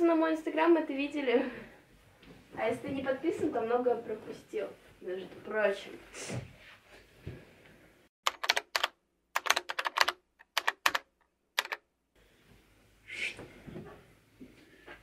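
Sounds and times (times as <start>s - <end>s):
keyboard typing clicks: 8.3s - 11.8s.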